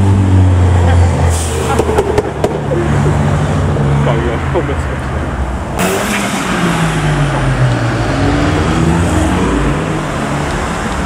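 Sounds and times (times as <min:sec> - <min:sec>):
car engine accelerating hard: 0:05.8 - 0:11.0.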